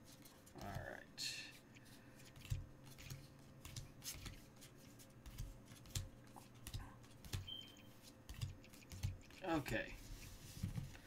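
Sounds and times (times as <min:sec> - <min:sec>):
cards clicking and sliding: 0:01.8 - 0:07.5.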